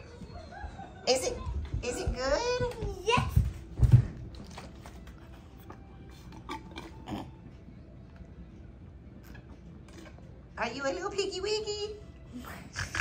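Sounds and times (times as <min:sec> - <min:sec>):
child chewing pretzels: 0:04.3 - 0:08.3, 0:09.1 - 0:10.4.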